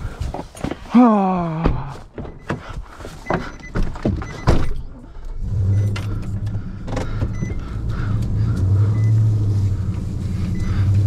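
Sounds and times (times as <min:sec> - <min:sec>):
truck door and cab clunking: 0:01.7 - 0:04.9, 0:05.7 - 0:09.2
truck engine running: 0:05.1 - 0:11.0.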